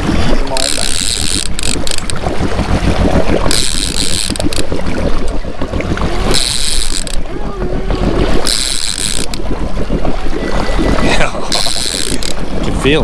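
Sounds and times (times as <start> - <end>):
boat engine rumbling: 0.0 - 13.0
water noise: 0.0 - 13.0
wind: 0.0 - 13.0.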